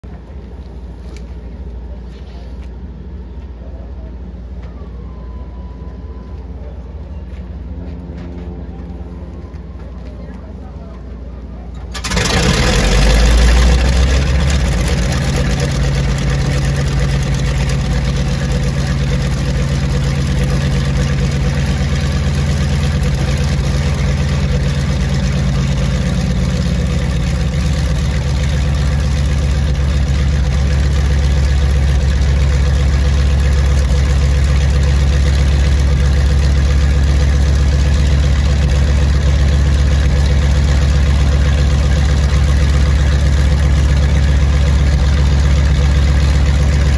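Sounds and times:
radial aircraft engine idling: 0.0s - 46.9s.

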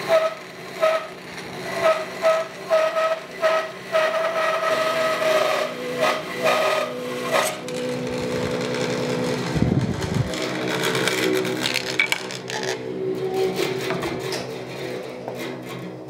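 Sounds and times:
bandsaw running: 0.0s - 16.0s
bandsaw whine ripping wood: 0.0s - 16.0s
wood pieces knocking on saw table: 11.6s - 12.7s.

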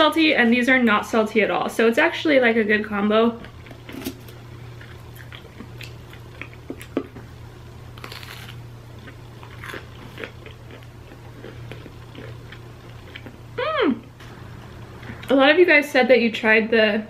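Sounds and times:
quiet chewing: 4.7s - 7.2s, 9.0s - 13.4s
crunching snack: 8.0s - 13.4s.

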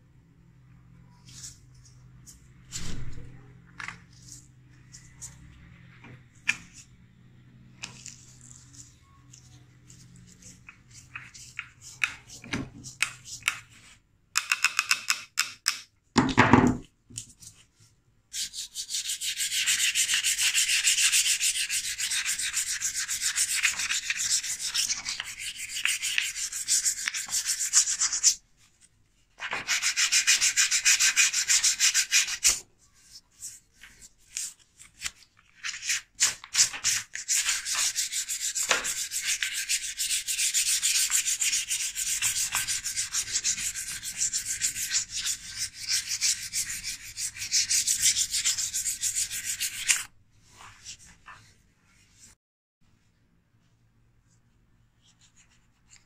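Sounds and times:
sandpaper rubbing by hand: 18.4s - 28.4s, 29.5s - 32.6s, 35.6s - 50.1s.

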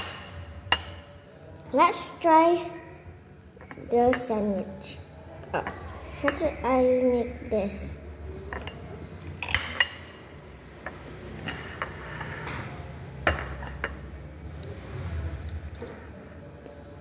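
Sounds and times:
cutlery clinking on a plate: 8.5s - 10.2s, 10.8s - 14.0s.

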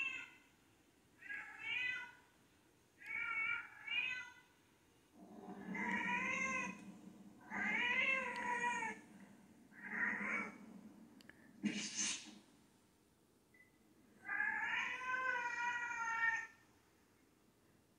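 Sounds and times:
cat yowling through tv speakers: 0.0s - 0.4s, 5.7s - 6.8s, 7.4s - 9.0s, 14.2s - 16.6s.

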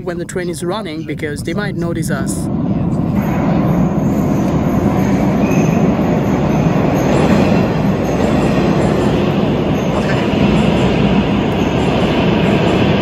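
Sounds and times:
train wheels rumbling on rails: 0.0s - 13.0s
wheel squeals: 3.2s - 13.0s.

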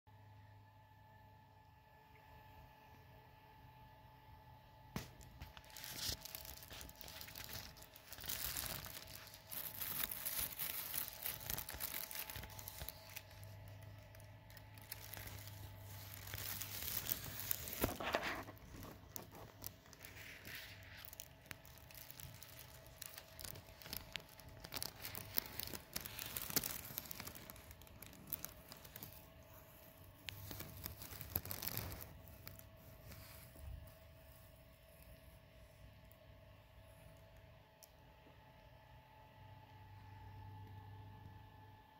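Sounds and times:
plastic sheeting crinkling: 5.0s - 35.2s.

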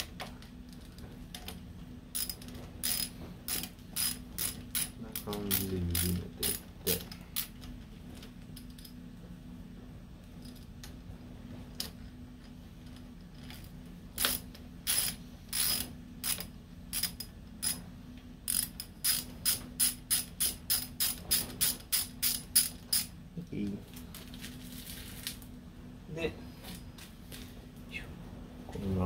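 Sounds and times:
ratchet wrench clicking: 2.1s - 7.7s, 14.2s - 17.8s, 18.5s - 23.1s.

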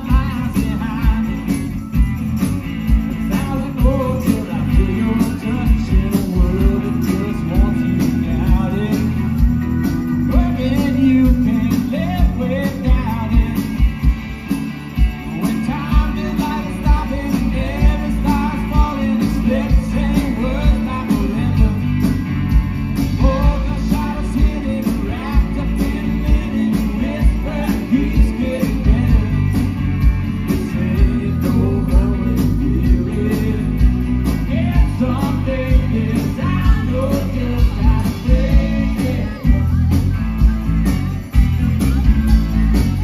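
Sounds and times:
drum beat: 0.0s - 43.0s
electric guitar: 0.0s - 43.0s
keyboard: 0.0s - 43.0s
person singing: 10.3s - 13.9s, 15.2s - 22.2s, 23.1s - 29.7s, 30.5s - 40.0s.

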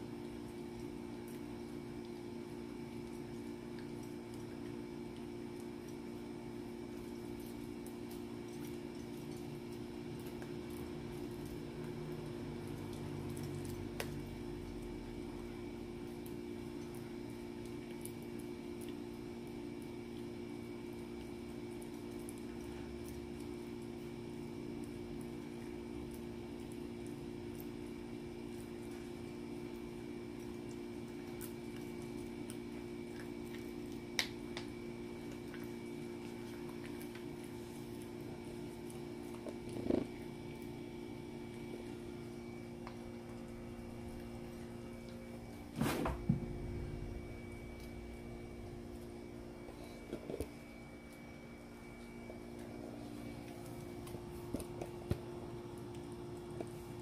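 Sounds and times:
dog chewing a treat: 2.9s - 45.7s
low hum: 36.3s - 56.7s.

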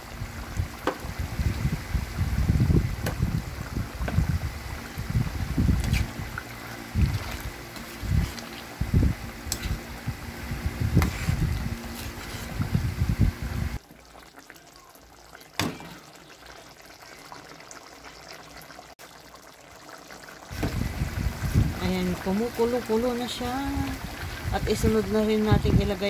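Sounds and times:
curry bubbling: 0.0s - 26.0s
spatula scraping a wok: 11.0s - 12.7s.

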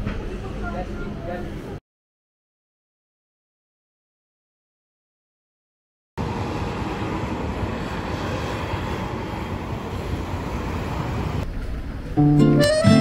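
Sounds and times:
road traffic passing: 6.2s - 13.0s
van passing close: 6.2s - 13.0s.

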